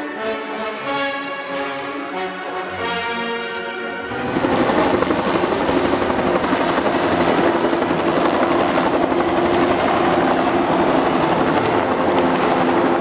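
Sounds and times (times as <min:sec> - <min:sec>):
helicopter flying low by: 0:03.9 - 0:13.0.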